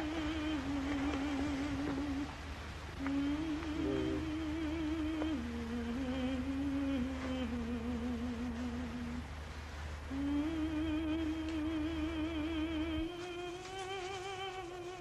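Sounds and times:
person humming a melody: 0:00.0 - 0:02.4, 0:03.0 - 0:09.3, 0:10.1 - 0:15.0
steady low hum: 0:00.0 - 0:15.0.

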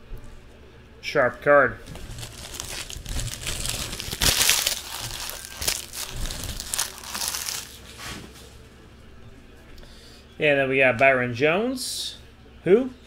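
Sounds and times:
card pack wrapper crinkling: 0:01.8 - 0:07.8.

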